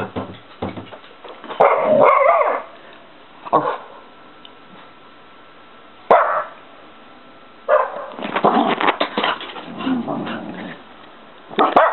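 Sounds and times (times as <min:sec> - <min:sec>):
small dog barking: 0:01.6 - 0:02.7, 0:03.5 - 0:04.0, 0:06.1 - 0:06.6, 0:07.7 - 0:08.2, 0:11.6 - 0:11.9
dog scrambling about: 0:07.7 - 0:10.9.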